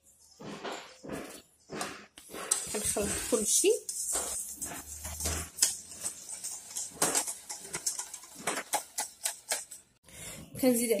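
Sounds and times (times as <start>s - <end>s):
whisk beating liquid in metal bowl: 2.4s - 9.8s.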